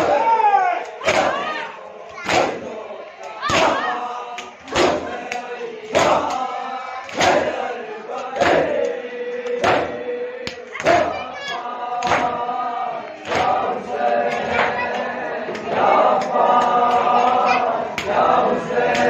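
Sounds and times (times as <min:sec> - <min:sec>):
men chanting in unison: 0:00.0 - 0:19.0
palms slapping chests: 0:00.8 - 0:01.6, 0:02.2 - 0:07.6, 0:08.3 - 0:12.4.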